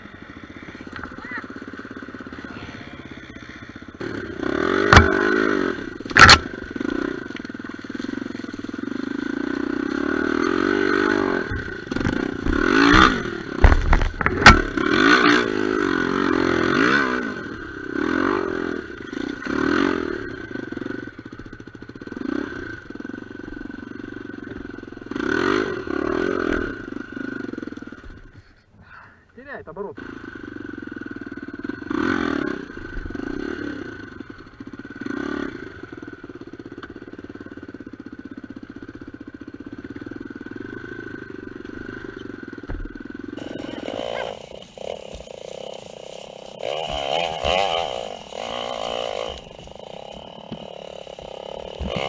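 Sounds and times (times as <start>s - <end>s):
dirt bike engine revving: 0.0s - 28.4s, 29.7s - 52.0s
sharp knocks and clatter: 11.9s - 14.9s.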